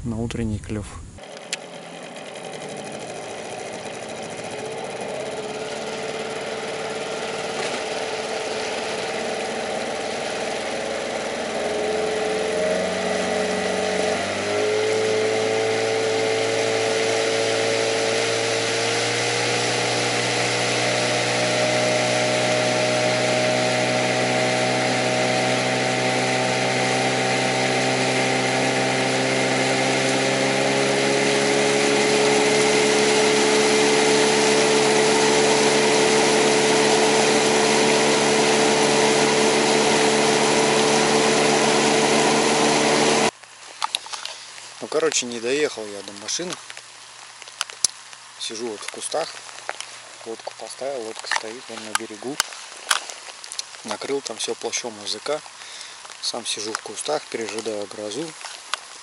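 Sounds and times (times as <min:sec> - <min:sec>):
outboard motor running: 0:01.2 - 0:59.0
even hiss: 0:43.3 - 0:59.0.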